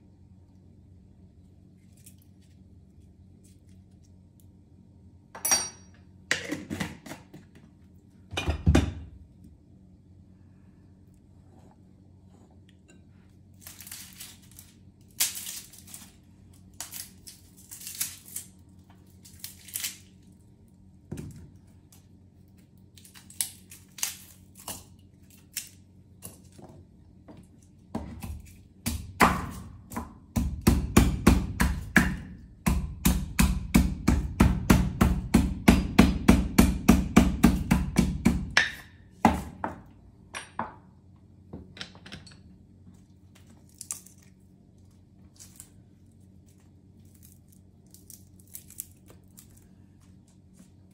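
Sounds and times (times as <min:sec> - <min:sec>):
knife chopping on cutting board: 0:28.0 - 0:39.6.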